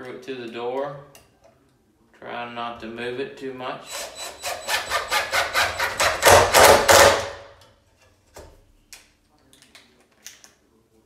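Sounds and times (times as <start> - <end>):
impact driver hammering screw: 3.9 - 7.4.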